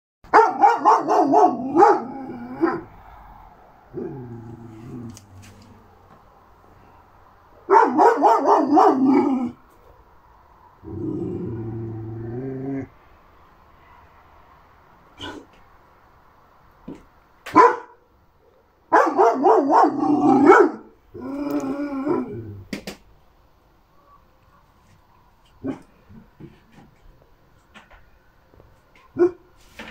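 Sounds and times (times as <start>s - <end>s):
puppy barking: 0.3s - 3.0s, 7.6s - 9.6s, 17.5s - 18.0s, 18.9s - 21.0s, 29.1s - 29.5s
dog growling low: 1.6s - 6.0s, 10.8s - 13.0s, 20.0s - 20.5s, 21.1s - 22.7s.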